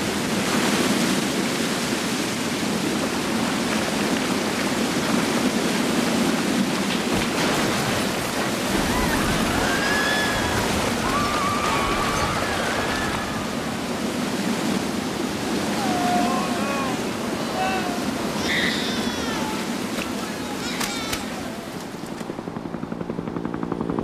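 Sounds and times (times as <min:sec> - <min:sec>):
mudflow roaring: 0:00.0 - 0:22.6.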